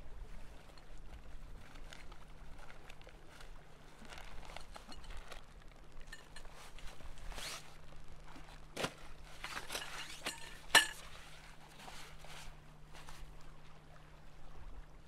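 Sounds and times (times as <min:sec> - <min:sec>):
fabric stuff sack rustling: 0:00.3 - 0:13.4
small clinks: 0:04.4 - 0:07.0, 0:09.5 - 0:11.2.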